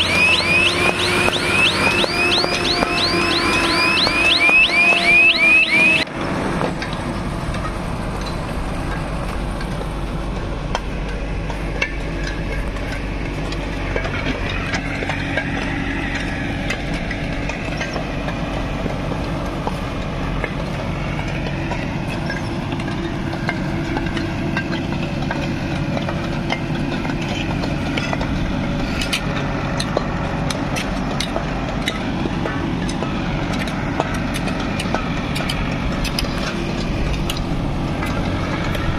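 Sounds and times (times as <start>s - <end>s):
diesel engine running: 0.0s - 38.9s.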